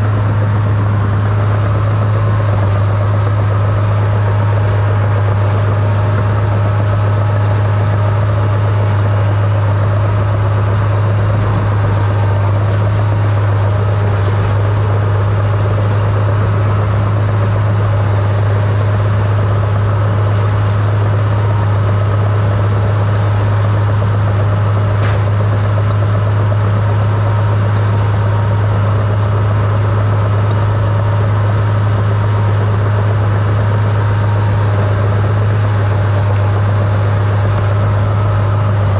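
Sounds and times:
diesel engine droning: 0:00.0 - 0:38.9.

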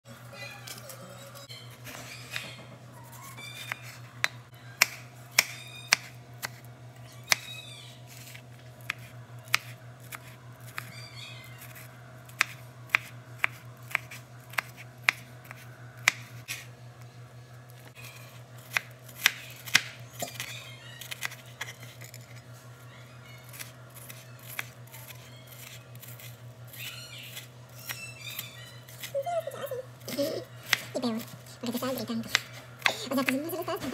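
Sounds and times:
steady low hum: 0:00.1 - 0:33.9
knife chopping on cutting board: 0:03.6 - 0:06.6, 0:12.4 - 0:16.7.

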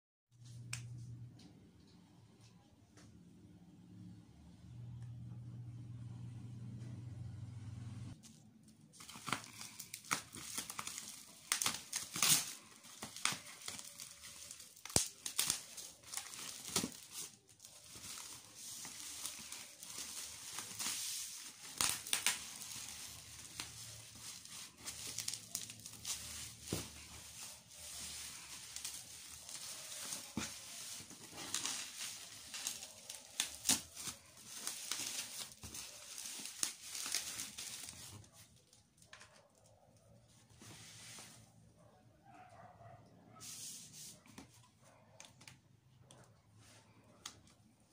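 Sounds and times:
bubble wrap crinkling: 0:08.1 - 0:41.5.

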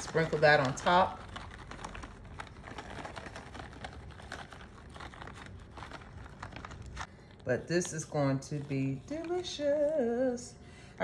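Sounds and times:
nut pieces pattering: 0:00.0 - 0:07.1
bag crinkling: 0:00.0 - 0:10.0.

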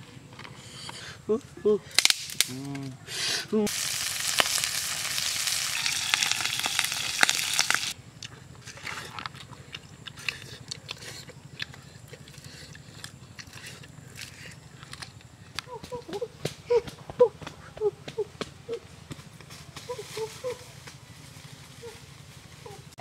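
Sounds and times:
chicken sizzling in a pan: 0:03.7 - 0:08.0.

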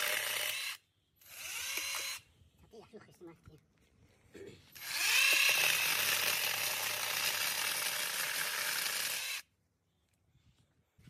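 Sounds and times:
chainsaw chain cutting wood: 0:00.0 - 0:02.2, 0:04.8 - 0:09.5.

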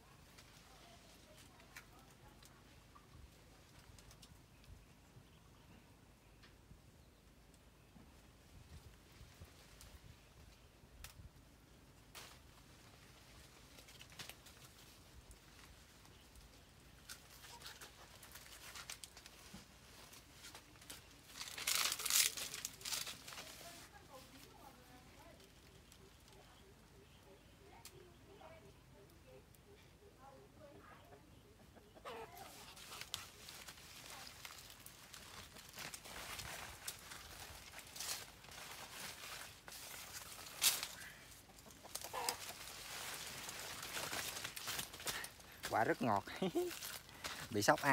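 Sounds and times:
leaves and twigs rustling: 0:00.0 - 0:05.4, 0:07.5 - 0:29.4, 0:32.0 - 0:47.9
small twig snaps: 0:11.0 - 0:11.2
branch cracking: 0:12.0 - 0:23.8, 0:32.6 - 0:47.9.

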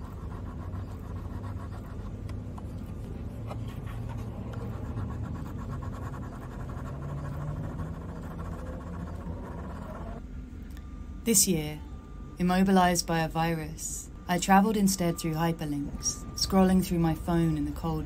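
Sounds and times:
scratching on paper: 0:00.0 - 0:10.2
low steady hum: 0:00.0 - 0:18.0.

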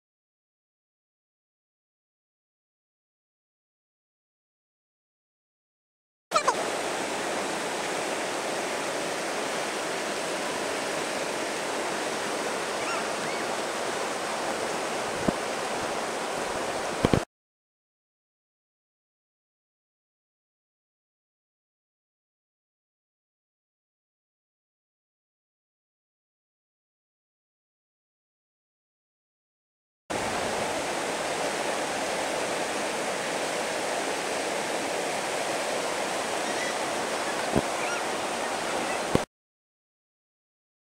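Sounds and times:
whitewater rapids rushing: 0:06.4 - 0:17.2, 0:30.1 - 0:39.2.

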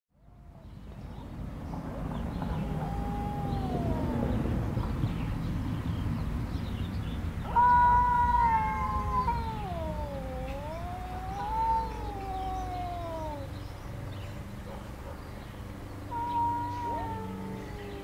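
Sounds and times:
cat yowling: 0:02.4 - 0:04.8, 0:07.4 - 0:13.7, 0:16.0 - 0:18.0.

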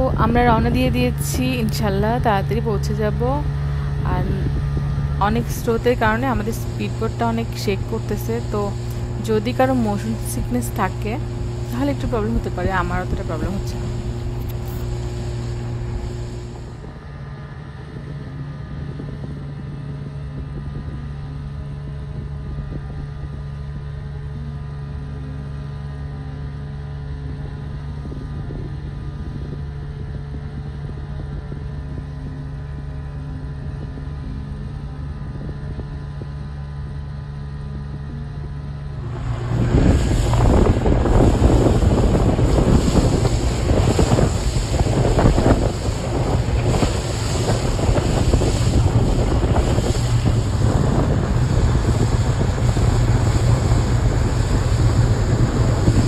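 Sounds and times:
speedboat engine hum: 0:00.0 - 0:56.0
wind on microphone: 0:00.0 - 0:56.0
water rushing past hull: 0:38.9 - 0:56.0.

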